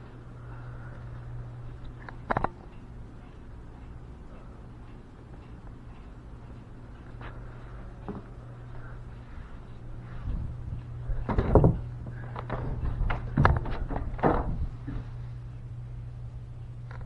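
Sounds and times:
steady low hum: 0:00.0 - 0:17.0
loud knocks: 0:11.2 - 0:11.9, 0:12.5 - 0:14.7.

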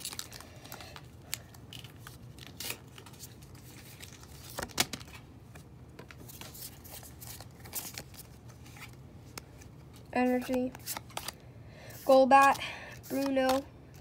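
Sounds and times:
foil wrapper crinkling: 0:00.0 - 0:04.8.

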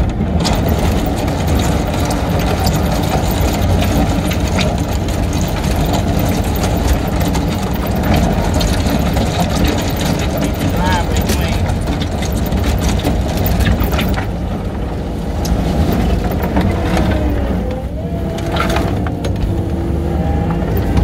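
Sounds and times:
knocks and rattles: 0:00.0 - 0:19.8
diesel engine running: 0:00.0 - 0:21.0.

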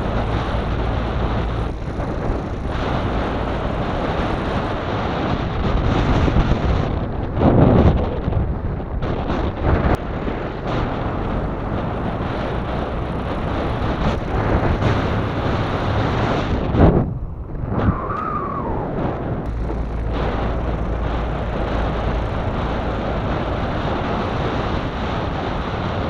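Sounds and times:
wind buffeting microphone: 0:00.0 - 0:26.0
short whine: 0:14.0 - 0:25.6.

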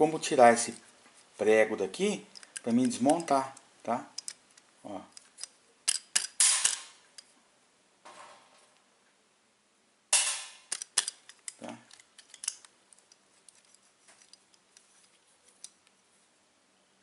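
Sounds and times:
sharp metal clicks and knocks: 0:02.3 - 0:07.3, 0:10.2 - 0:14.9
metallic clatter: 0:10.2 - 0:15.8.

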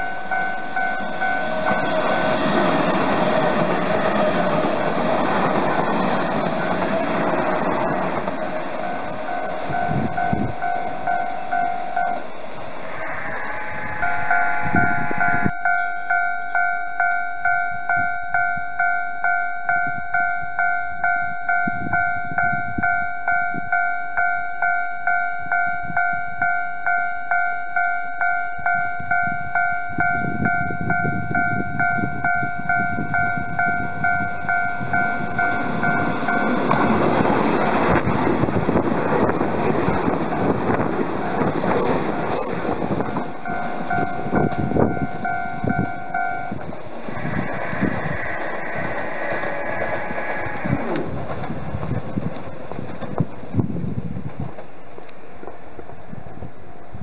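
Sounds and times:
level crossing alarm ringing: 0:00.0 - 0:02.7, 0:07.7 - 0:12.3, 0:13.7 - 0:37.1, 0:42.2 - 0:46.6
train rumbling past: 0:00.0 - 0:57.0.

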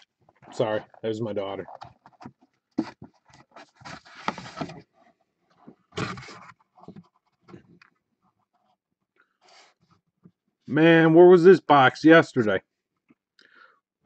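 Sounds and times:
cardboard box scraping on desk: 0:02.8 - 0:05.2, 0:05.9 - 0:07.0.

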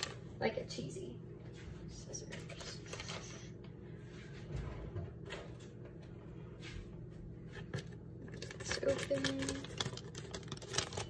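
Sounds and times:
plastic bag crinkling: 0:08.2 - 0:11.0.

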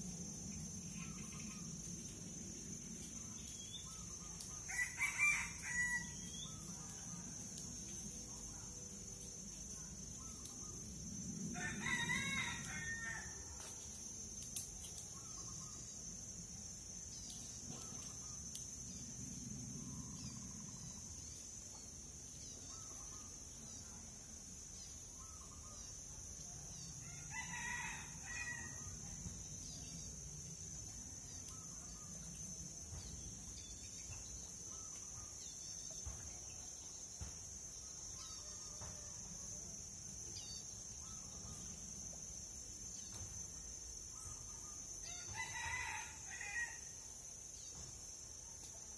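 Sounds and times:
rooster crowing: 0:04.7 - 0:06.3, 0:11.5 - 0:13.5, 0:27.0 - 0:28.9, 0:45.0 - 0:46.9.

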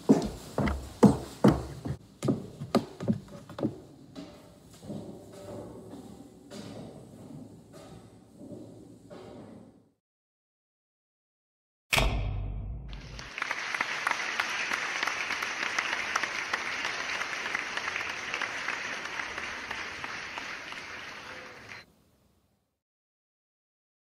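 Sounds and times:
audience applauding: 0:13.0 - 0:21.9.

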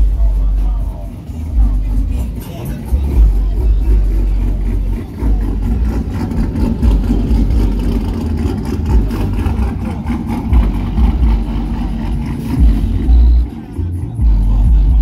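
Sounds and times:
car engine running loudly: 0:00.0 - 0:15.0
deep low thumps: 0:02.9 - 0:13.4, 0:14.2 - 0:15.0.

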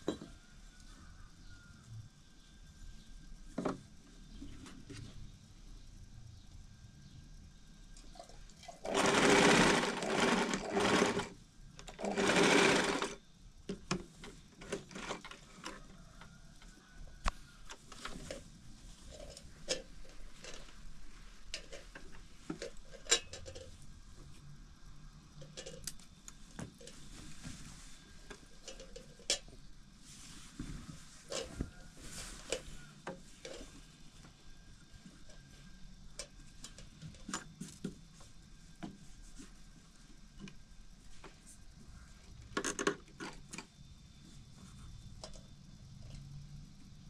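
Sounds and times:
sewing machine stitching: 0:08.6 - 0:13.2, 0:14.6 - 0:15.8.

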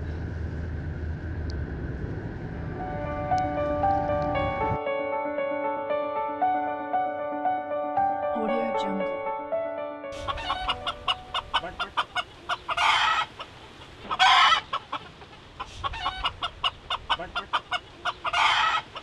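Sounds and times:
chickens clucking: 0:10.2 - 0:19.0
harsh chicken calls: 0:10.2 - 0:19.0.

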